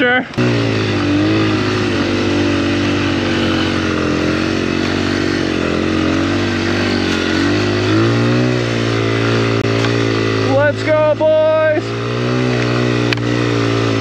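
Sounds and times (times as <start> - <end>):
dirt bike engine running: 0.0 - 14.0.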